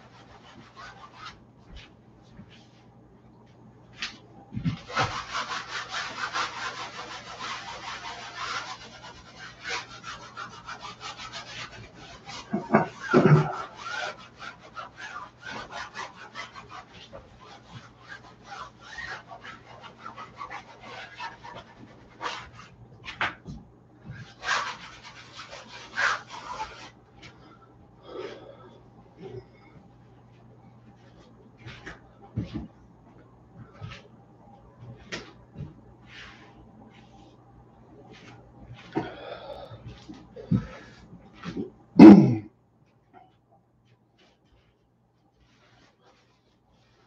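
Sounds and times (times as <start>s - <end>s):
cloth scrubbing paint on canvas: 0.0s - 2.8s, 4.1s - 27.5s, 34.8s - 37.4s, 45.4s - 47.0s.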